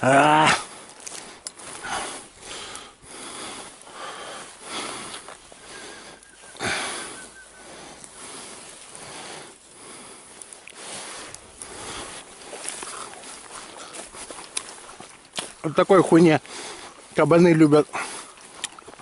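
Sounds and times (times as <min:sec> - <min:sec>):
branches and grass rustling: 0:00.0 - 0:19.0
footsteps in undergrowth: 0:00.0 - 0:19.0
breathing close to microphone: 0:00.5 - 0:14.4, 0:16.4 - 0:17.1, 0:17.9 - 0:18.4.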